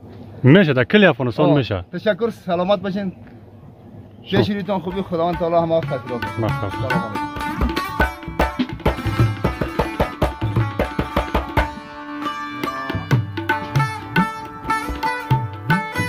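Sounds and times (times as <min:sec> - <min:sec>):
hand-drum rhythm: 0:04.4 - 0:16.0
plucked string melody: 0:04.9 - 0:16.0.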